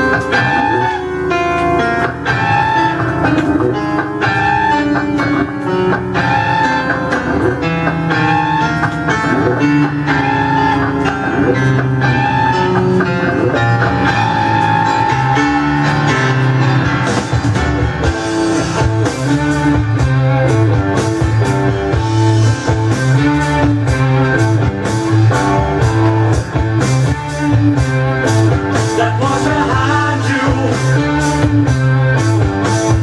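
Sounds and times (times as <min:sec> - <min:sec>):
hard rock electric guitar riff: 0:00.0 - 0:33.0
drums and cymbals: 0:16.8 - 0:33.0.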